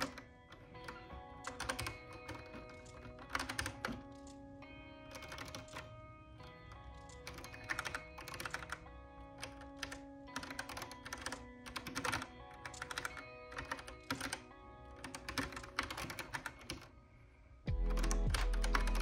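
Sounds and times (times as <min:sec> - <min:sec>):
keyboard key clicks: 0:00.0 - 0:04.4, 0:05.1 - 0:05.9, 0:06.7 - 0:08.8, 0:09.4 - 0:14.4, 0:15.0 - 0:16.9
soft background music: 0:00.0 - 0:19.0.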